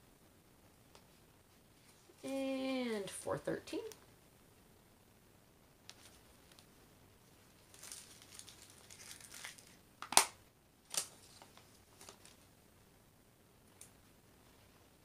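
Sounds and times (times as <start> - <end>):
plastic bag crinkling: 7.6 - 10.2.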